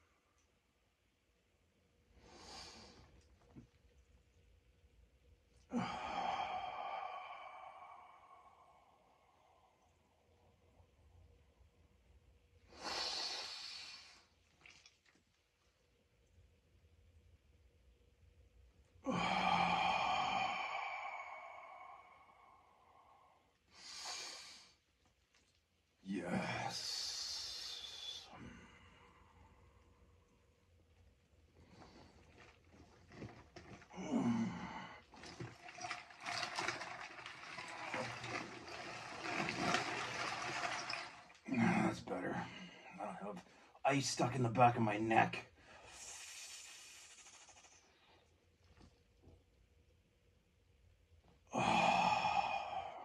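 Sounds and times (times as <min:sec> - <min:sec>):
man groaning: 0:19.0 - 0:21.5, 0:33.9 - 0:35.0, 0:41.5 - 0:42.6, 0:51.5 - 0:53.0
man sighing loudly: 0:19.0 - 0:22.1, 0:51.5 - 0:53.0
ice water sloshing: 0:35.1 - 0:41.8
ice chunks clattering and grinding: 0:35.2 - 0:41.4.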